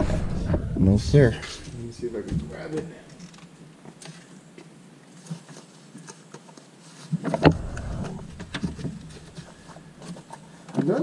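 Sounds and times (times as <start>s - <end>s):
loud thump: 0.0s - 2.5s, 7.4s - 9.9s.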